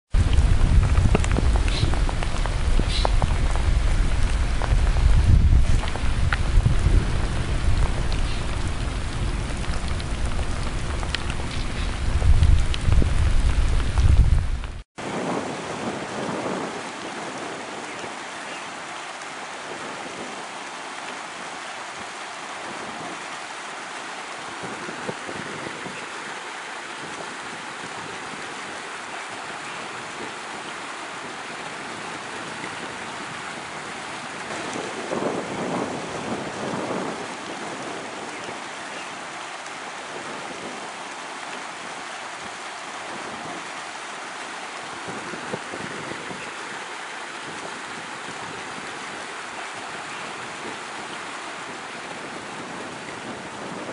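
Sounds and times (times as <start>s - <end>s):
water rushing in a channel: 0.1s - 53.9s.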